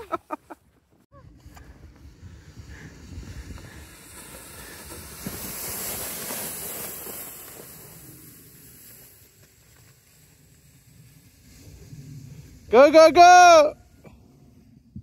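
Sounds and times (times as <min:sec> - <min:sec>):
wind on microphone: 0:01.1 - 0:05.4
sled sliding over snow: 0:01.2 - 0:15.0.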